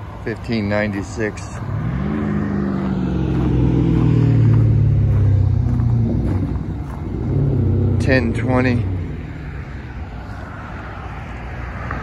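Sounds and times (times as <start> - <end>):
car driving past: 1.5 - 12.0.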